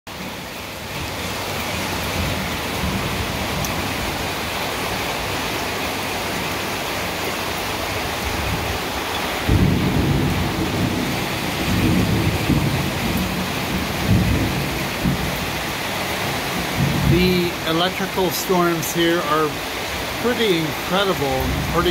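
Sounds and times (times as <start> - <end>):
rain falling: 0.1 - 21.9
thunder rumbling: 8.1 - 21.9.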